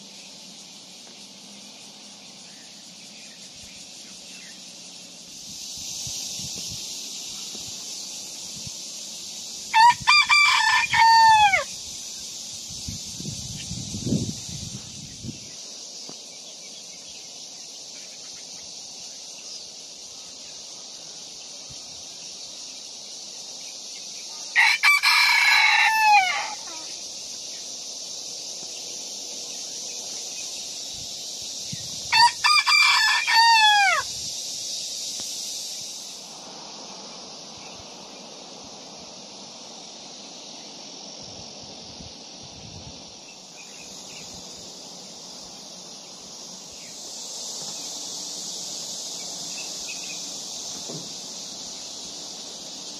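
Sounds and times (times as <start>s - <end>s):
steady high hiss: 0.0s - 52.9s
rooster crowing: 9.7s - 11.7s, 24.5s - 26.9s, 32.1s - 34.1s.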